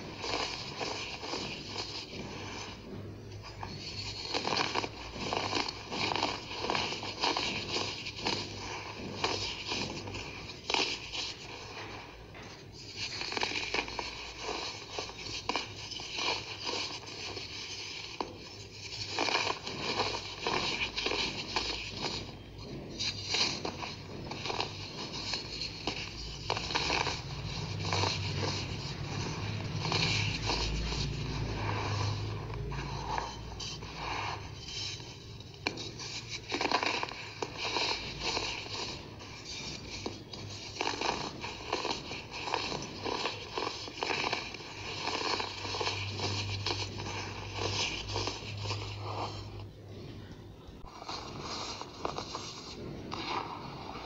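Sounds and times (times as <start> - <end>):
faint low hum: 0.0 - 54.0
powder scraping: 0.0 - 54.0
baking soda crunching: 3.6 - 49.6
powder lumps crunching between fingers: 39.8 - 49.5.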